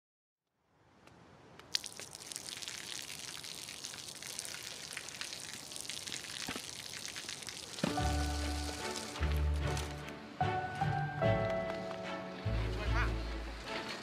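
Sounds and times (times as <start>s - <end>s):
water dripping: 1.5s - 9.4s
water spattering on wet pavement: 1.6s - 9.9s.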